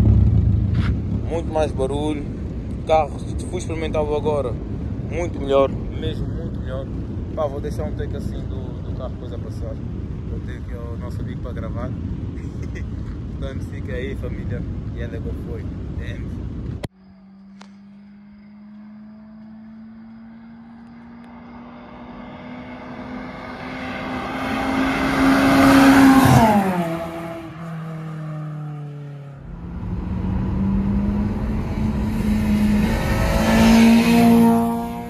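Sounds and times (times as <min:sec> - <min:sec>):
car accelerating past: 0:17.0 - 0:35.0
car engine revving inside car: 0:29.5 - 0:35.0.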